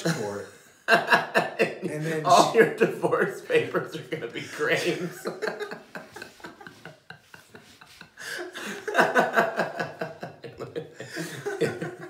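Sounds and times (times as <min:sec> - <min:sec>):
men laughing: 0:00.0 - 0:12.0.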